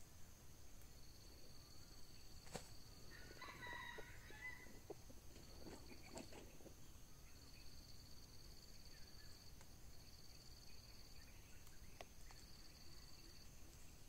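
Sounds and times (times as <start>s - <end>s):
high insect trill: 0.0s - 14.0s
junglefowl calling: 3.1s - 4.8s
rustles and knocks: 4.7s - 6.8s.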